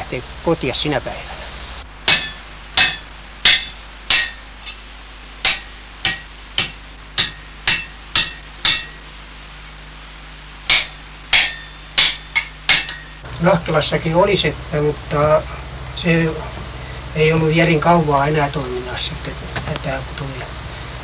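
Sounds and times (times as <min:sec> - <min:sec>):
hammer striking metal on anvil: 0:02.1 - 0:04.8, 0:05.4 - 0:09.2, 0:10.7 - 0:13.2.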